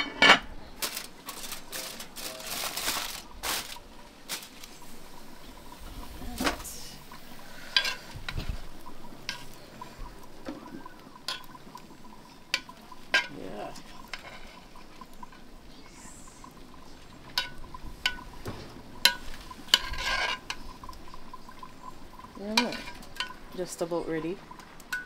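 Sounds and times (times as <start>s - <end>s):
metal knocking and scraping pot: 5.5s - 15.5s, 16.5s - 23.8s
spoon stirring rice in pot: 7.6s - 15.5s, 16.8s - 23.5s.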